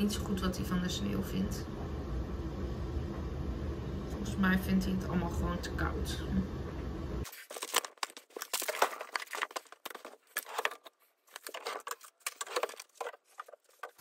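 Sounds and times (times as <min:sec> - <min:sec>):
paper packaging crinkling: 0:07.2 - 0:14.0.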